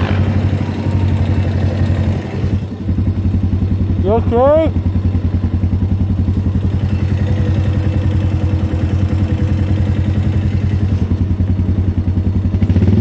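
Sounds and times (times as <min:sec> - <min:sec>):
quad engine running steadily: 0:00.0 - 0:13.0.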